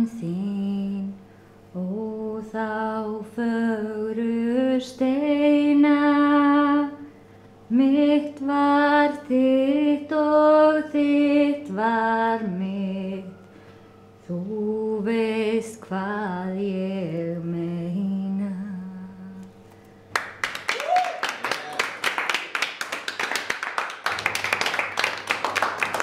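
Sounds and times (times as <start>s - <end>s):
woman singing unaccompanied: 0.0s - 1.2s, 1.8s - 7.1s, 7.7s - 13.4s, 14.2s - 19.5s.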